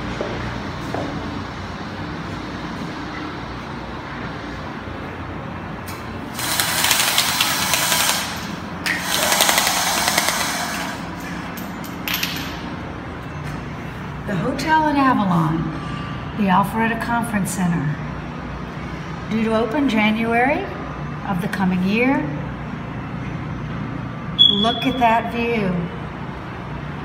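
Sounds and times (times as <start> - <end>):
power tool hammering rapidly: 6.4 - 10.8.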